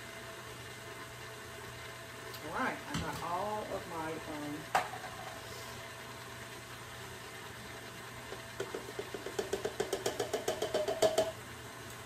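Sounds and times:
cup tapping metal mixing bowl: 8.6 - 11.4.

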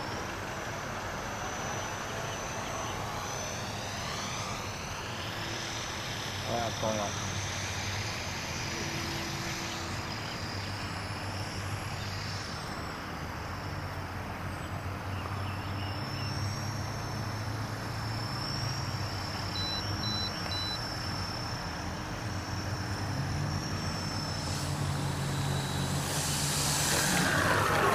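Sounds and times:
model airplane motor whine: 0.0 - 27.9
steady background hum: 0.0 - 27.9
short high beeps: 19.6 - 20.8.

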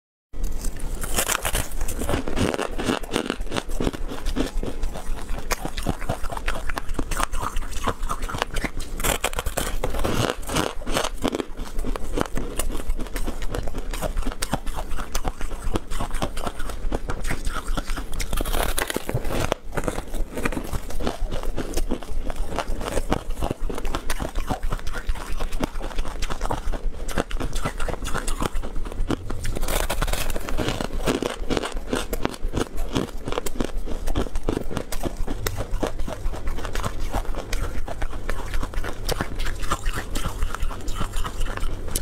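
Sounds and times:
crunchy chewing: 0.4 - 42.0.

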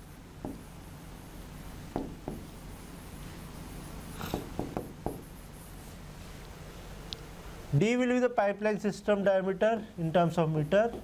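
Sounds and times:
low room hum: 0.0 - 11.0
pen writing on a board: 4.2 - 5.4.

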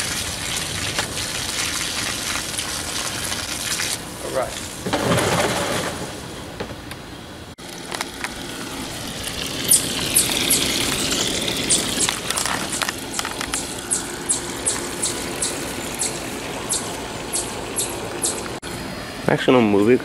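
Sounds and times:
hose water splashing into pool: 0.0 - 6.3, 7.6 - 18.6
sharp high ticks: 13.1 - 18.6.

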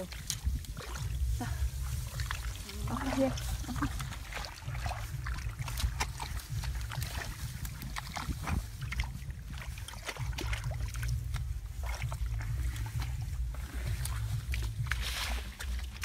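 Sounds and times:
low rumble on microphone: 0.0 - 16.0.

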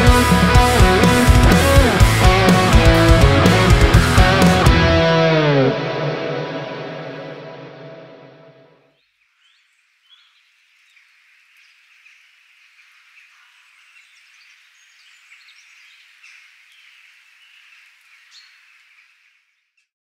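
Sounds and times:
distorted electric guitar chord: 0.0 - 8.7
high chirping animal calls: 9.0 - 19.5.

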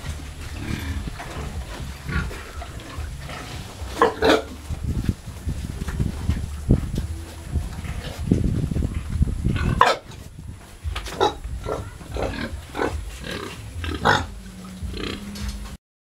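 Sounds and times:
pigs squealing: 0.0 - 4.7, 9.5 - 10.2, 11.0 - 15.7
low rumbling noise: 0.0 - 15.8.

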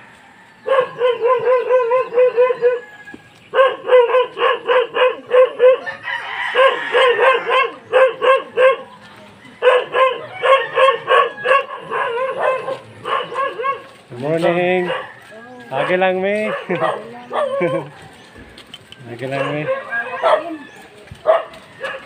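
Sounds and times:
dog barking in fast yaps: 0.7 - 2.8, 3.5 - 5.8, 6.6 - 8.9, 9.6 - 13.9, 14.8 - 15.1, 15.8 - 17.9, 19.3 - 20.6, 21.2 - 22.0.

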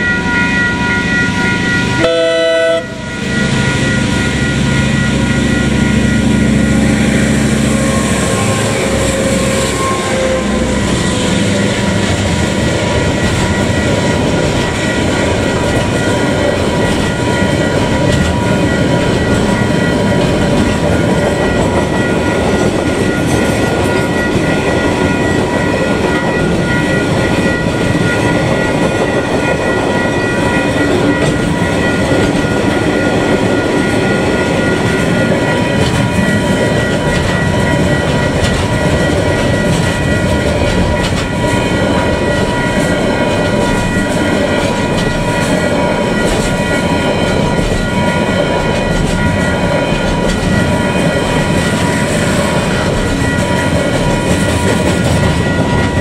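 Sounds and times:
high-pitched ringing tones: 0.0 - 56.0
train wheels clattering: 5.1 - 56.0.

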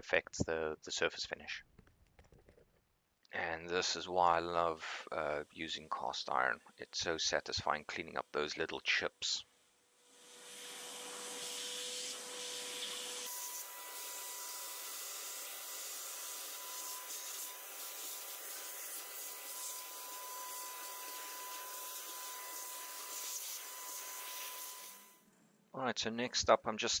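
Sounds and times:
vacuum cleaner running: 10.1 - 25.2.

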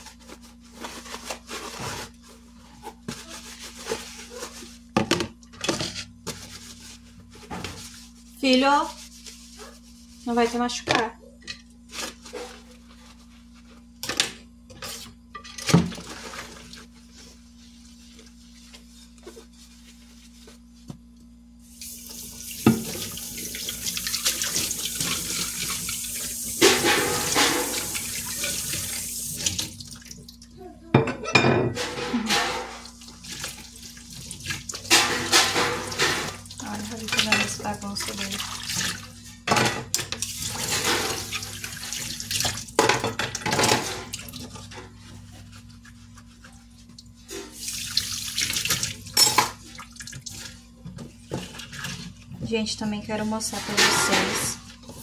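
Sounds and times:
scrubbing dishes: 0.0 - 20.6, 22.1 - 30.3, 31.0 - 55.0
tap water running: 21.7 - 30.6, 31.8 - 44.9, 45.8 - 52.6
dishes and cutlery clinking: 31.0 - 32.8, 49.1 - 49.6, 53.5 - 54.6.

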